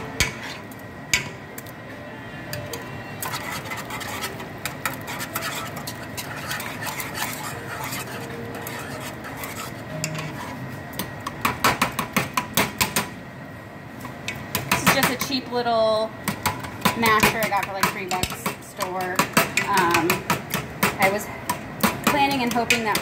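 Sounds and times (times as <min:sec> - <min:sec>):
wire whisk clinking in metal pot: 0:03.2 - 0:10.4.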